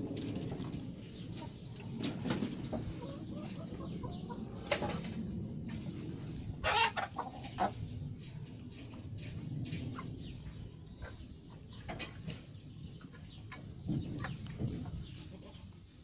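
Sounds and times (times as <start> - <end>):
low rumble: 0.0 - 11.9
chickens clucking: 0.0 - 16.0.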